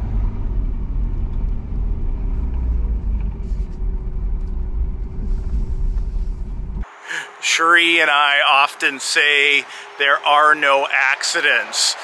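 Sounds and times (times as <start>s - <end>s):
engine and road rumble: 0.0s - 12.0s.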